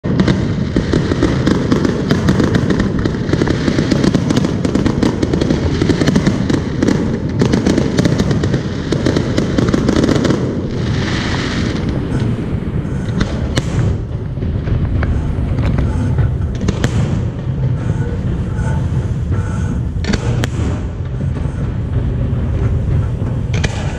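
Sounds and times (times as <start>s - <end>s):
fireworks bursting and crackling: 0.0s - 23.9s
steady low rumble: 0.0s - 23.9s.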